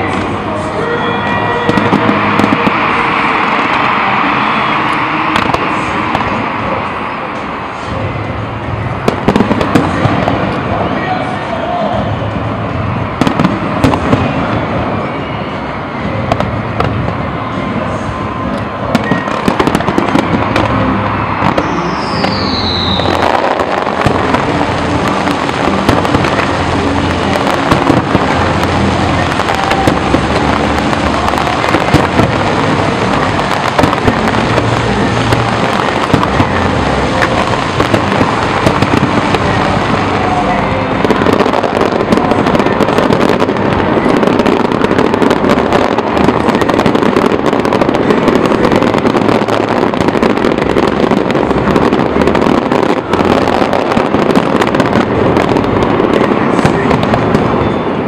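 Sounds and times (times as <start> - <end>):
fireworks bursts and crackling: 0.0 - 58.0
falling whistle: 21.5 - 23.3.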